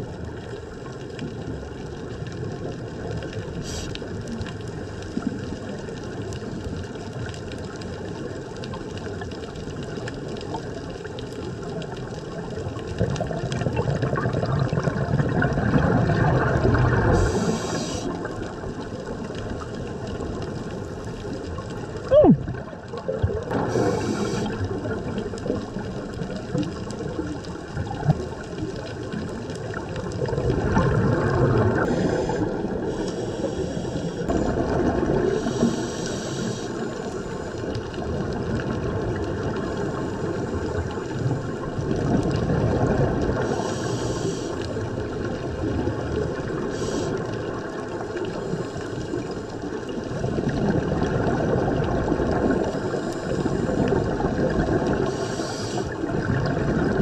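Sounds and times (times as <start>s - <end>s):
muffled underwater rush: 0.0s - 57.0s
scuba regulator breathing hiss: 3.6s - 4.1s, 17.1s - 18.3s, 23.6s - 24.8s, 31.8s - 34.4s, 35.4s - 37.6s, 43.4s - 44.7s, 46.7s - 47.4s, 52.8s - 53.9s, 55.0s - 56.0s.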